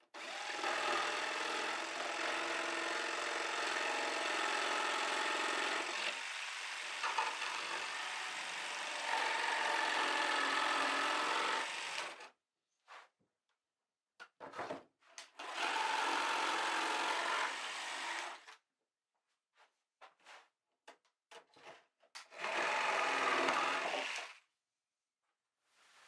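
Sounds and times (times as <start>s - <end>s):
jigsaw cutting wood: 0.0s - 12.3s, 15.4s - 18.6s, 22.2s - 24.4s.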